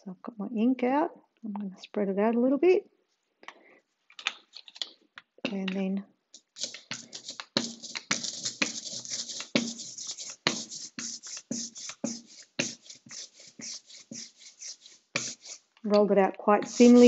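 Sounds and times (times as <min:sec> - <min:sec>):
roller rolling through sticky ink: 0:06.4 - 0:15.7, 0:16.5 - 0:17.0.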